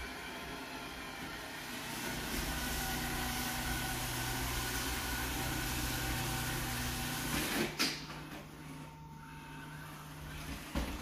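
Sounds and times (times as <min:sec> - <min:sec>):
robot vacuum humming and whining: 0:00.0 - 0:11.0.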